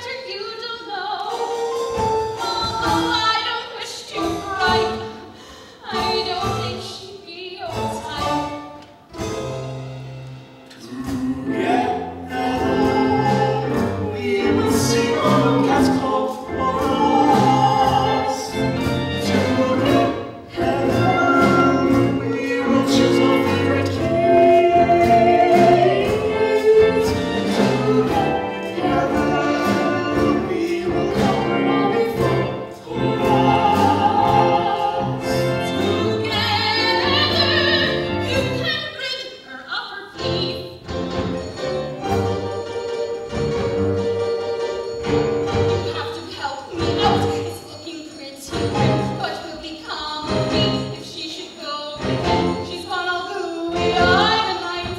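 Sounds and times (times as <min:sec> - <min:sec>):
instrumental accompaniment: 0:01.1 - 0:39.1, 0:40.2 - 0:54.9
performers singing: 0:10.7 - 0:38.6, 0:53.6 - 0:54.9.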